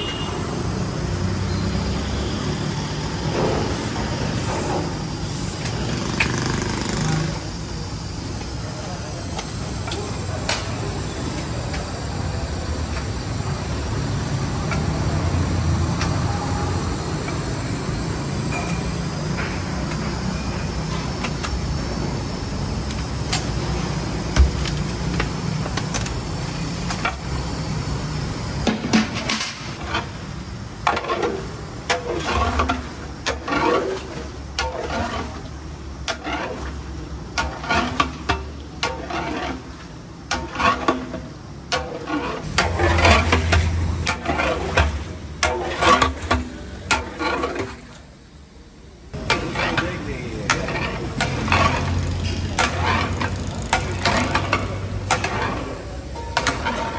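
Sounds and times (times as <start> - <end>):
low rumble of burner: 7.1 - 56.9
oil splashing and sizzling: 29.8 - 48.0, 49.2 - 55.8.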